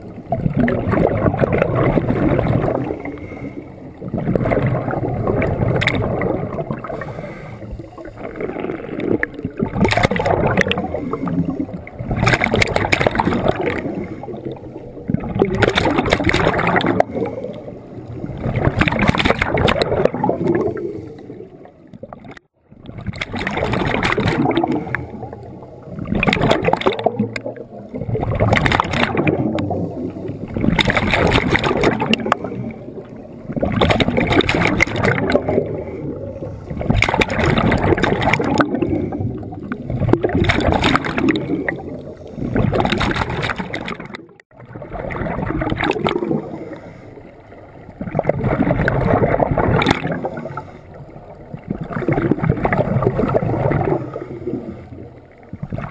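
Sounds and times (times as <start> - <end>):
exhaled bubbles gurgling underwater: 0.0 - 55.9
breathing in through regulator: 2.9 - 3.9, 6.8 - 8.4, 46.4 - 47.4, 50.4 - 51.0.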